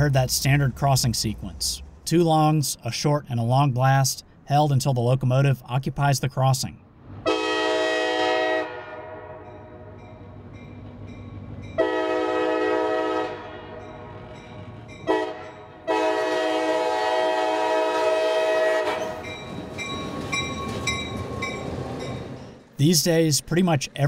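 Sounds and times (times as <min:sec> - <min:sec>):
locomotive rumbling past on rails: 0:00.0 - 0:02.5, 0:06.8 - 0:24.0
locomotive air horn blasts: 0:07.2 - 0:10.0, 0:11.8 - 0:14.1, 0:15.0 - 0:19.2.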